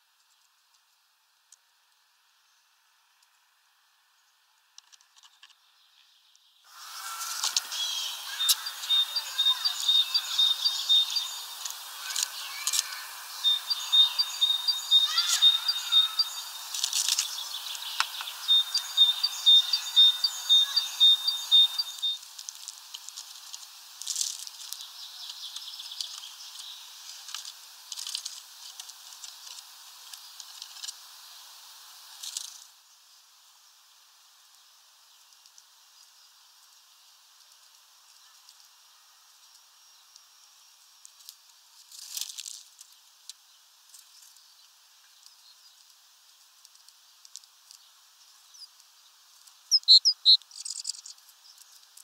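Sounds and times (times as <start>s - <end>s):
songbird singing high notes: 6.8s - 22.2s, 49.7s - 50.4s.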